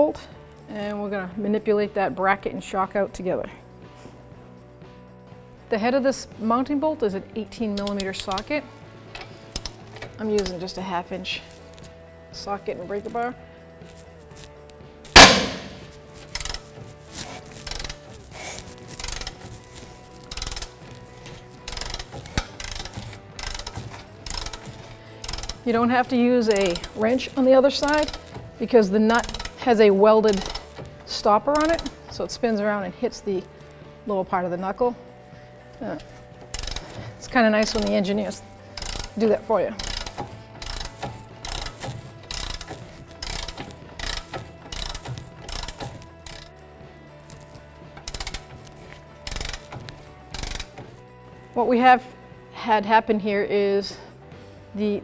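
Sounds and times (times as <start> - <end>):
ratchet clicking: 7.8 - 8.5, 9.1 - 10.6, 15.1 - 32.2, 35.9 - 51.0.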